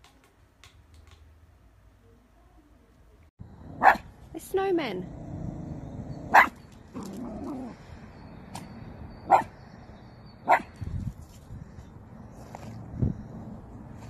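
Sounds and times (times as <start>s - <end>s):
small dog barking: 3.8s - 4.1s, 6.3s - 6.6s, 9.3s - 9.5s, 10.4s - 10.7s.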